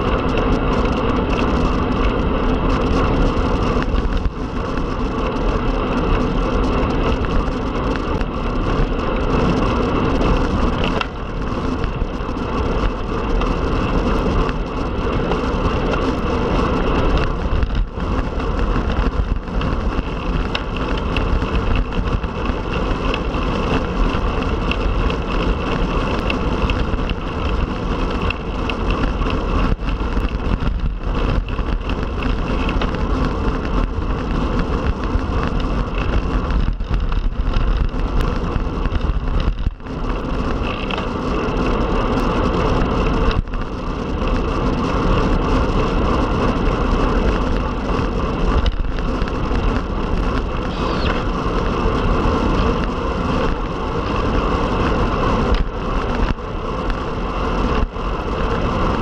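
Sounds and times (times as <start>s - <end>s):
bike tyre noise on road: 0.0s - 59.0s
wind rushing over microphone: 0.0s - 59.0s.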